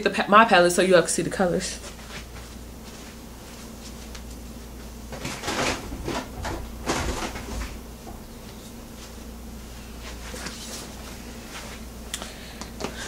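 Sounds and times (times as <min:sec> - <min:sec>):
knocks and rustles of rummaging: 0:05.1 - 0:09.2.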